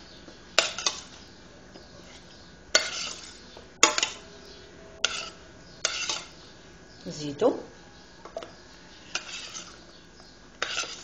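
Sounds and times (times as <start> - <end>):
metal spoon clanking on saucepan: 2.7 - 4.2.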